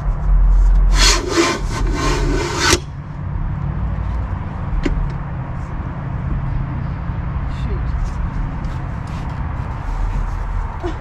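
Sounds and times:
rough scraping strokes: 0.4s - 3.0s.

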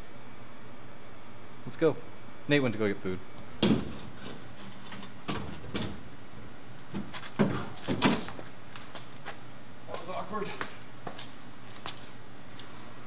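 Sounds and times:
metal parts knocking and clanking: 3.6s - 6.0s.

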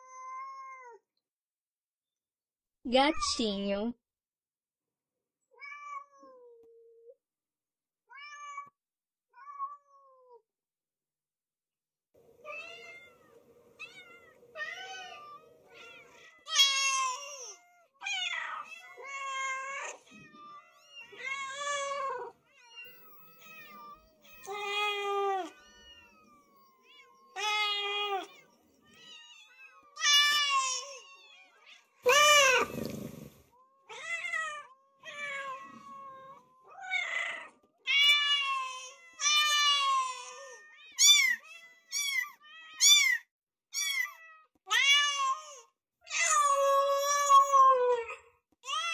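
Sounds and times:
cat meowing: 12.4s - 33.3s, 33.9s - 43.2s.

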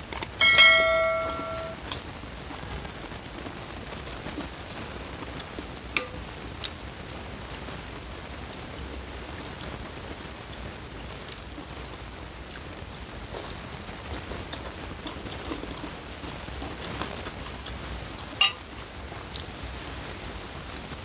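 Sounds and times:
steady hiss: 0.0s - 21.0s
chewing noodle soup: 1.9s - 21.0s
spoon and fork clicking on bowl: 18.4s - 18.6s.

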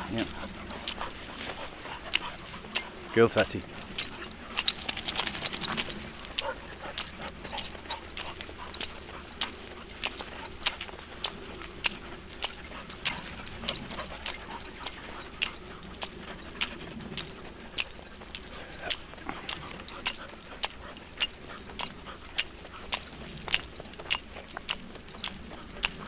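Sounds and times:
footsteps on dirt track: 0.0s - 26.0s.

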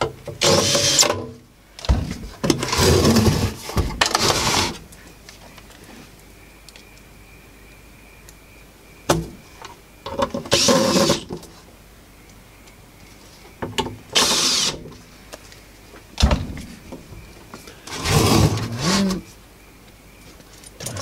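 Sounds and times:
metal case rubbing and scraping: 2.1s - 4.8s, 10.4s - 11.3s, 17.9s - 19.3s.

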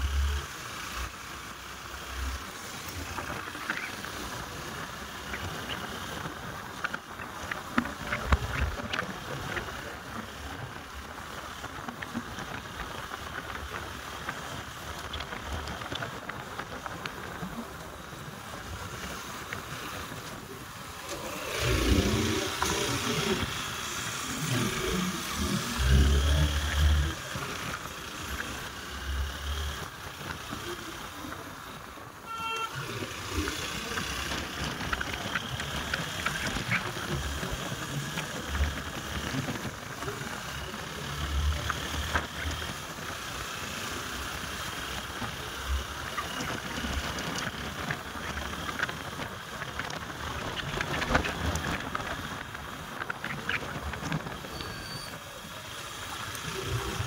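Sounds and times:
road traffic noise: 0.0s - 57.0s
short vehicle horn beep: 32.2s - 32.9s.

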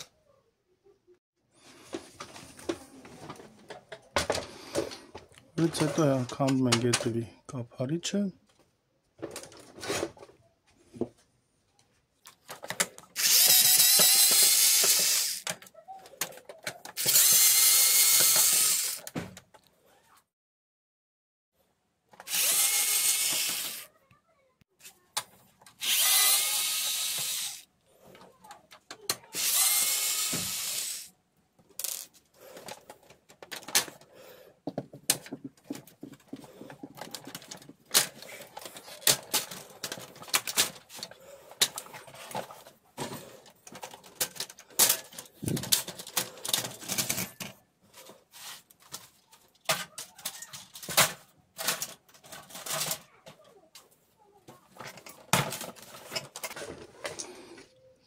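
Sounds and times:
cordless electric screwdriver: 13.2s - 15.5s, 17.0s - 19.0s, 22.3s - 23.9s, 25.8s - 27.7s, 29.4s - 31.1s
plastic casing being handled: 32.4s - 53.5s.

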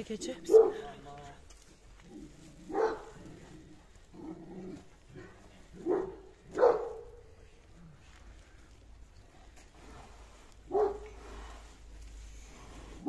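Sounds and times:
dog barking: 0.5s - 0.9s, 2.7s - 3.2s, 5.2s - 7.2s, 10.7s - 11.1s.

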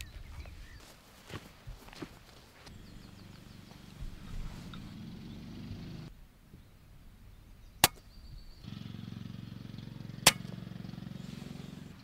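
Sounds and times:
silenced air rifle shots: 7.8s - 8.2s, 10.2s - 10.6s.

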